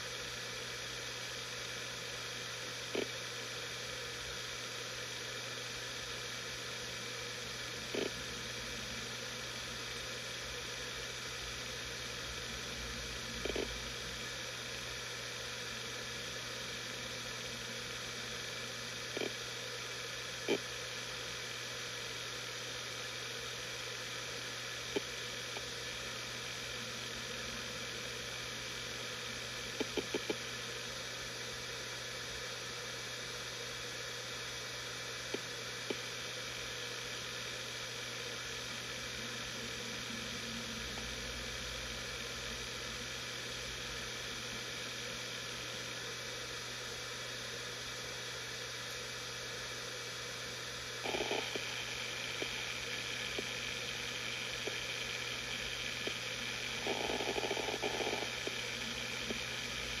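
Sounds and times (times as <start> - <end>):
hard drive humming: 0.0 - 60.0
hard drive seek clicks: 2.6 - 3.4, 7.0 - 9.8, 12.4 - 14.8, 16.9 - 19.6, 20.4 - 21.2, 23.9 - 31.7, 35.2 - 36.4, 38.3 - 42.0, 50.9 - 60.0.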